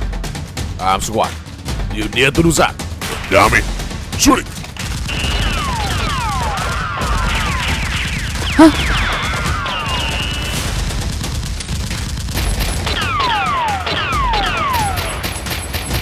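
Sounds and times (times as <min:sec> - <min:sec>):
gunfire volleys: 0:03.0 - 0:16.0
laser-like whistles: 0:07.4 - 0:10.6
person crying out: 0:08.6 - 0:08.8.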